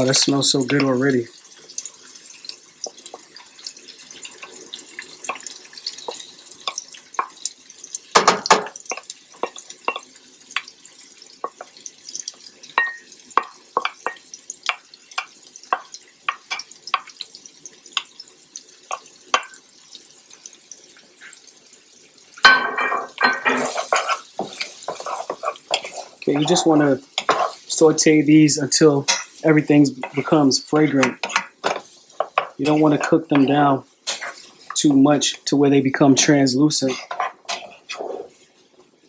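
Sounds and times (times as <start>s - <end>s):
faint sizzle: 0.0s - 39.0s
spoon clattering on board and pan: 2.8s - 10.7s, 11.4s - 17.3s, 18.9s - 19.6s, 22.4s - 27.6s, 29.0s - 29.4s, 30.8s - 34.8s, 36.8s - 38.2s
wooden spoon knocking on board: 8.2s - 8.8s.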